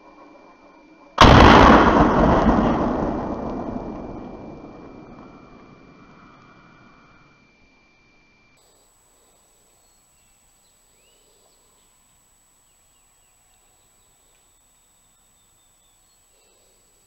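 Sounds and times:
distant songbird chirps: 0:09.7 - 0:17.0.

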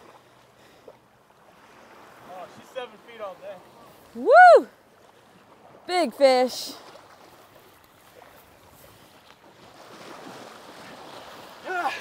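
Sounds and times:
water splashing in surf: 0:00.0 - 0:12.0
man shouting: 0:11.6 - 0:12.0.

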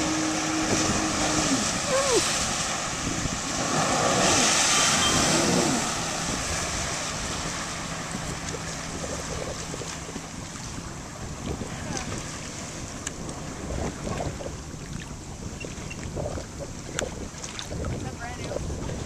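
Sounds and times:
personal watercraft engine: 0:00.0 - 0:19.0
water splashing: 0:00.0 - 0:19.0
wind on microphone: 0:00.0 - 0:19.0.

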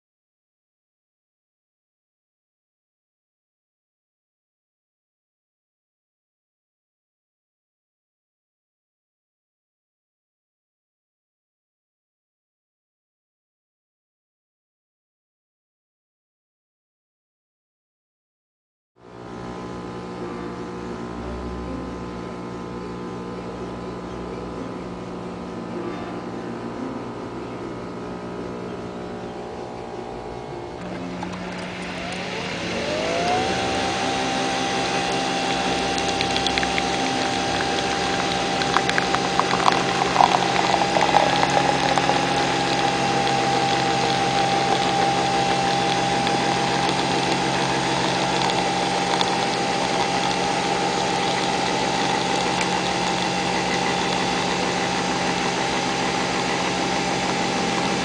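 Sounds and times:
coffee machine motor whine: 0:19.0 - 0:58.0.

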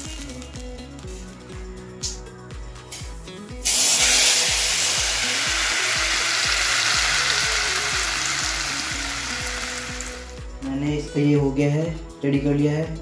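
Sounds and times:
hot oil sizzling in marinade: 0:03.6 - 0:10.4.

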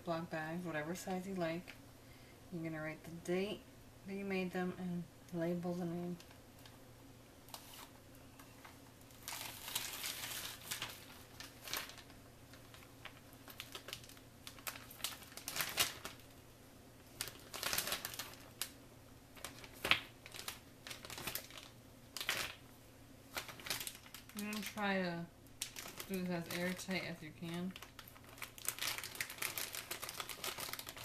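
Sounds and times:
plastic bag crinkling: 0:07.5 - 0:07.9, 0:08.6 - 0:16.3, 0:17.1 - 0:18.8, 0:19.4 - 0:22.6, 0:23.3 - 0:31.0.

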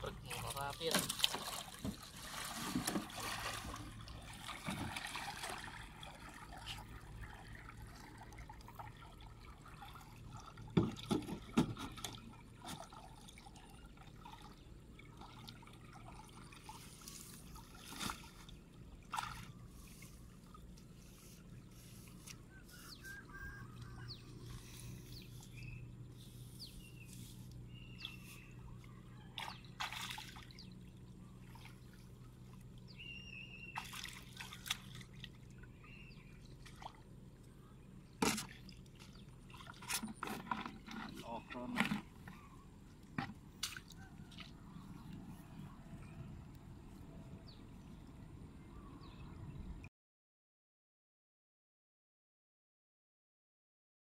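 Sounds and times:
water trickling and sloshing: 0:00.0 - 0:49.9
splashes or knocks: 0:00.8 - 0:06.6, 0:10.6 - 0:13.1, 0:29.4 - 0:30.6, 0:43.1 - 0:44.5.

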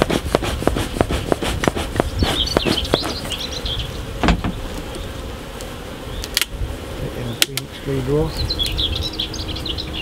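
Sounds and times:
sharp knocks on hive: 0:00.0 - 0:03.4, 0:04.2 - 0:04.8
smoker bellows puffs: 0:00.0 - 0:03.4
honeybees buzzing: 0:00.0 - 0:10.0.

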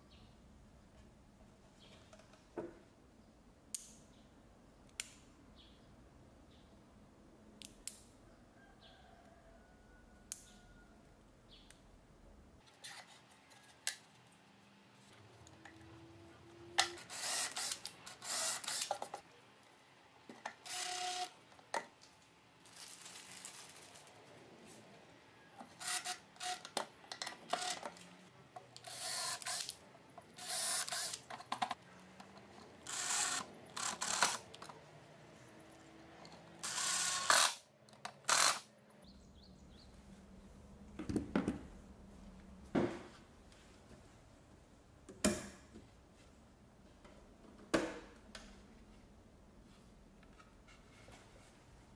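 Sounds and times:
cordless drill driving screws: 0:17.0 - 0:18.9, 0:20.6 - 0:21.3, 0:25.7 - 0:26.6, 0:27.5 - 0:27.9, 0:28.8 - 0:29.8, 0:30.4 - 0:31.2, 0:32.8 - 0:34.5, 0:36.6 - 0:37.6, 0:38.3 - 0:38.6.

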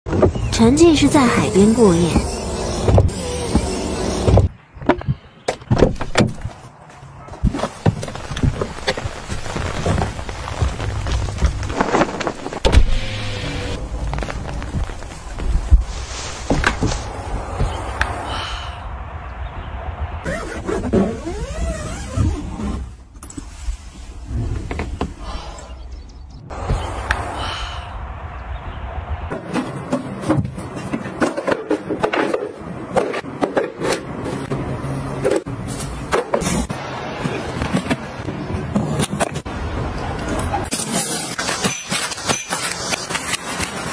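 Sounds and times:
tent fabric rustling: 0:07.4 - 0:12.6, 0:13.5 - 0:17.1, 0:20.3 - 0:24.4.

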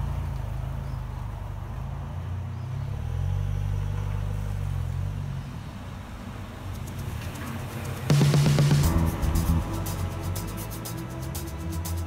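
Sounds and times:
car engine running: 0:06.3 - 0:12.0.

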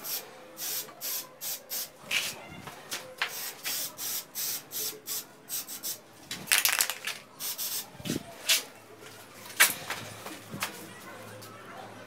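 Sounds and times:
spray paint can hissing: 0:00.0 - 0:02.3, 0:03.2 - 0:07.9.

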